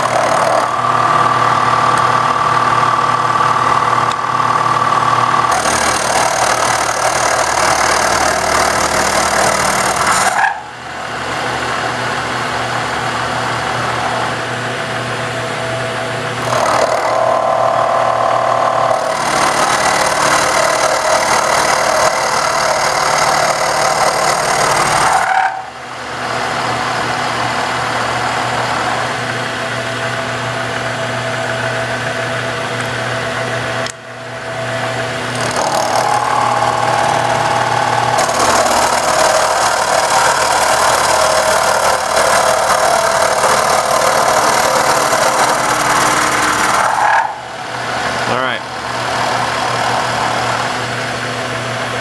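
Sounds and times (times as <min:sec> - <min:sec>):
milling machine cutting wood: 0:00.0 - 0:10.6, 0:16.3 - 0:25.6, 0:34.8 - 0:52.0.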